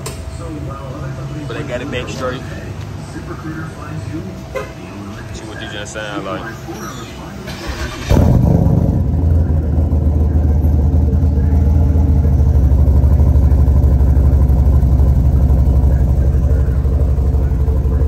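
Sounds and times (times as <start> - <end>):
deep engine idling: 7.5 - 18.0.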